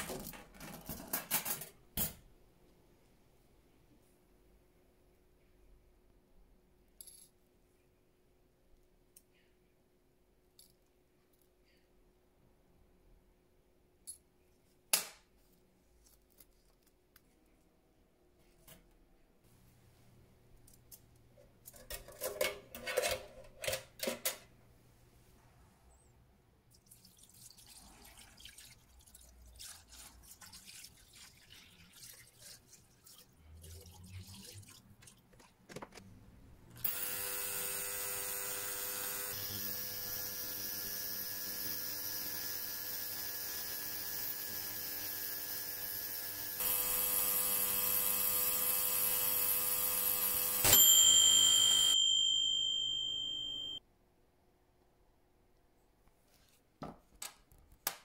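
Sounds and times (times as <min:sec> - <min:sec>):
ultrasonic cleaner buzzing hiss: 0:36.8 - 0:50.8.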